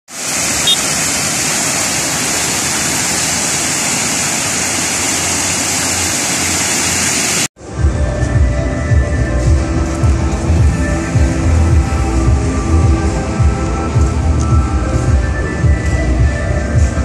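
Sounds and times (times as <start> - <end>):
fountain water splashing into pool: 0.1 - 7.5
music with heavy bass: 7.6 - 17.0.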